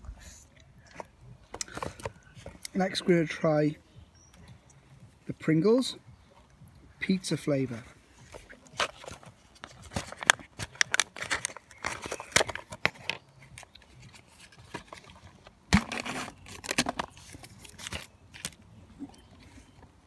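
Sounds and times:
foil seal tearing and crinkling: 9.7s - 13.2s.

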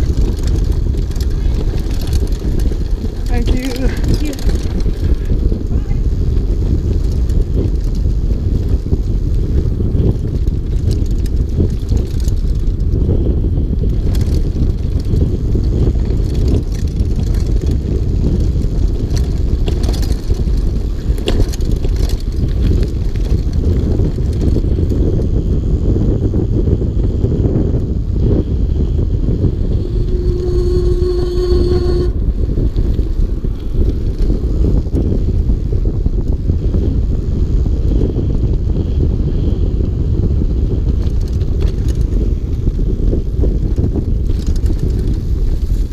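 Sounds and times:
bike clicks and rattles: 0.0s - 45.9s
tyres rolling on dirt trail: 0.0s - 45.9s
wind buffeting microphone: 0.0s - 45.9s
steady pitched tone: 29.1s - 33.5s.

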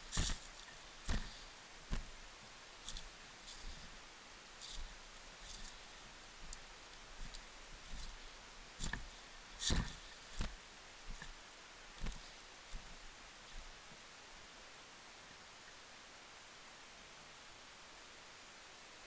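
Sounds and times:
footsteps on dry leaves: 0.0s - 2.2s, 2.8s - 4.0s.

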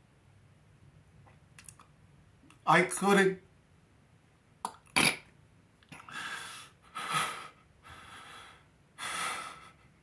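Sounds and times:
mouth noise: 4.6s - 6.0s
man breathing: 6.0s - 10.0s.

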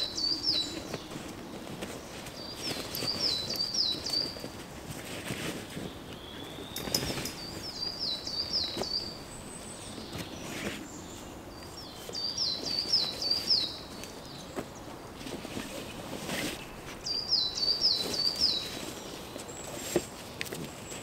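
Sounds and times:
small songbird singing: 0.0s - 4.6s, 5.8s - 15.3s, 16.6s - 19.9s
gear knocking on dry leaves: 0.0s - 11.0s
outdoor rustle: 0.0s - 21.0s.

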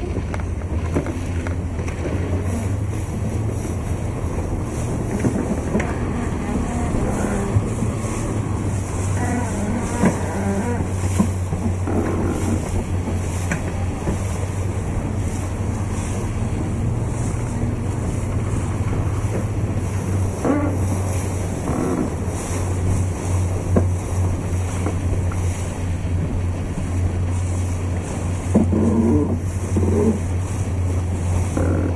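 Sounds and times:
low engine hum: 0.0s - 31.9s
water splashing: 0.0s - 31.9s
wind on microphone: 0.0s - 31.9s.

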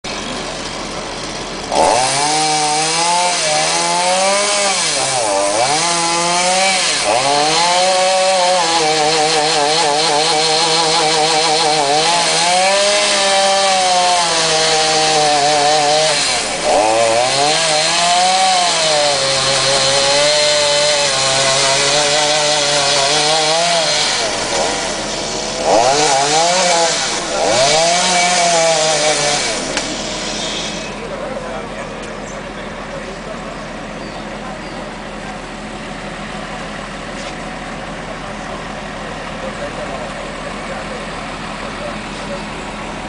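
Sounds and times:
chainsaw cutting wood: 0.1s - 31.2s.

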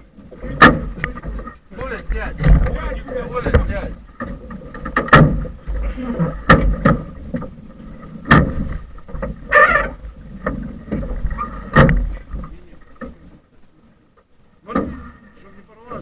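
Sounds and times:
sharp knocks and bangs: 2.1s - 5.8s, 6.4s - 7.4s, 8.2s - 9.4s.

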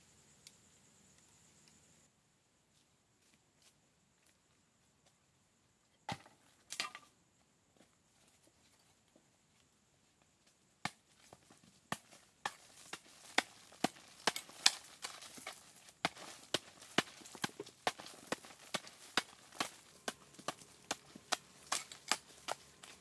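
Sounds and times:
blade chopping wood: 11.9s - 23.0s.

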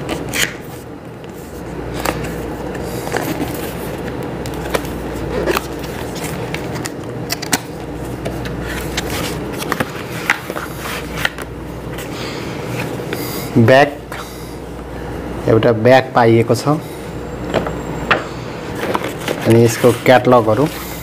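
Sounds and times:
packaging being handled: 0.0s - 13.5s, 18.7s - 21.0s
steady low hum: 0.0s - 21.0s.

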